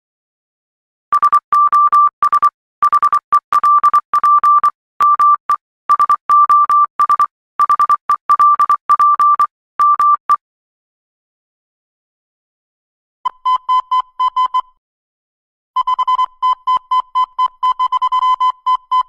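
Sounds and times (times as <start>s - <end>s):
morse code beeps: 1.1s - 10.4s, 13.3s - 14.8s, 15.8s - 19.0s.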